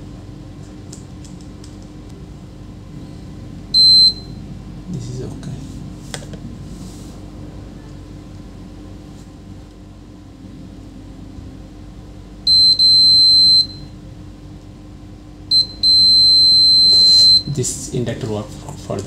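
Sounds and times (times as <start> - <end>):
multimeter continuity beeps: 3.7 - 4.4, 12.4 - 13.9, 15.5 - 17.6.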